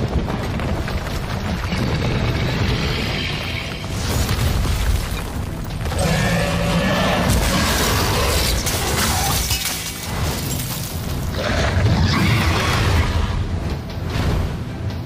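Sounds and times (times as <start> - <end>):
dramatic trailer music: 1.6 - 15.0
debris crashing: 3.9 - 6.6, 7.2 - 11.3
rock shattering: 7.3 - 11.3.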